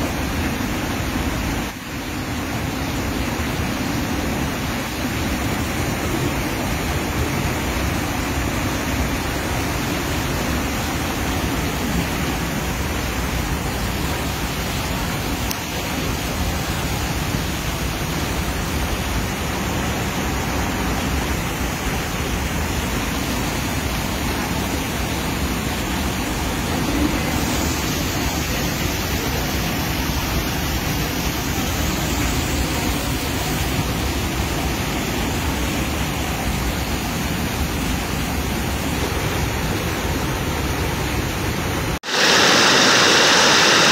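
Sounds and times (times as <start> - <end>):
floodwater rushing: 0.0 - 43.9.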